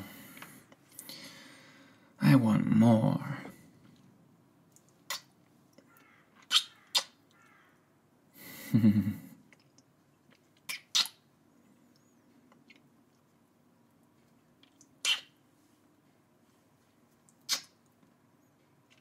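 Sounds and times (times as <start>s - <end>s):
breathy exhale with hum: 0.0s - 2.2s
lip smacking kisses: 4.8s - 5.3s, 6.4s - 7.2s, 10.7s - 11.2s, 14.6s - 15.3s, 17.3s - 17.8s.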